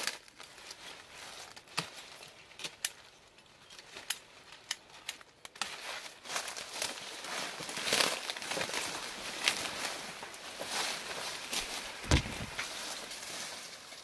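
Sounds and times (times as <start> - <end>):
dry leaves rustling: 0.0 - 14.0
pruning shears snipping cane: 1.4 - 6.0.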